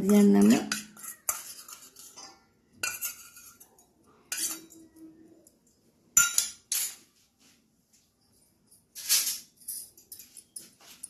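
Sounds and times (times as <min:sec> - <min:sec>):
spoon clinking against metal bowl: 0:00.0 - 0:07.0.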